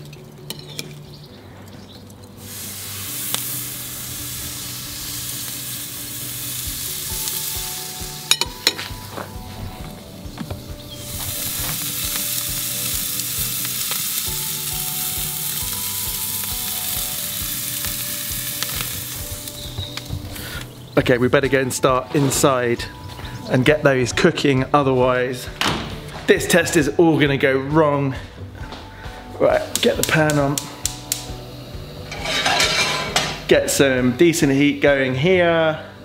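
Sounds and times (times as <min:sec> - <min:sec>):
chicken sizzling on a grill: 0:02.4 - 0:09.1, 0:10.8 - 0:20.8, 0:29.7 - 0:36.0.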